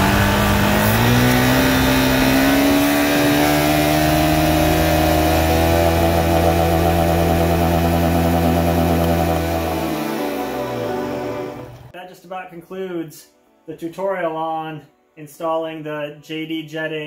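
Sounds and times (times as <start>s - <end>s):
motorcycle engine revs climbing: 0.0s - 11.9s.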